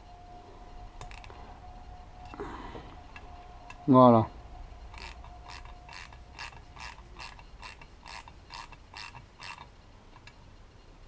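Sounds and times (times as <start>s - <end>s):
ratchet wrench clicking: 4.9s - 9.7s.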